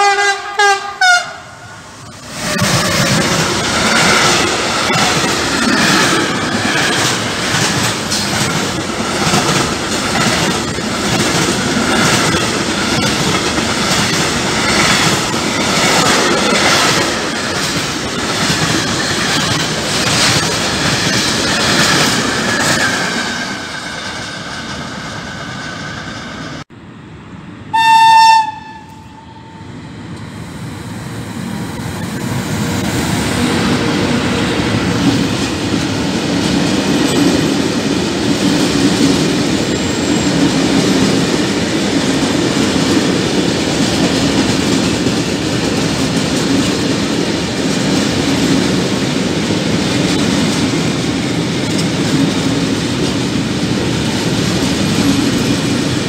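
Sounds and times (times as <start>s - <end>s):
locomotive horn blast: 0.0s - 1.7s, 27.7s - 29.6s
train wheels clattering over rails: 2.1s - 26.0s, 31.9s - 56.0s.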